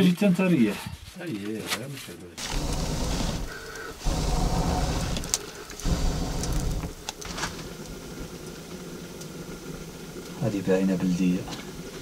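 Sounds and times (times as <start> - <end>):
fire crackling: 2.3 - 12.0
wind rumbling on microphone: 2.4 - 12.0.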